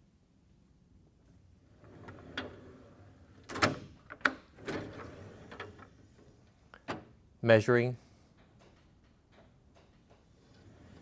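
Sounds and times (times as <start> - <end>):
metal drawer sliding: 1.7 - 6.4, 10.4 - 11.0
drawer clicks and clunks: 1.8 - 7.2.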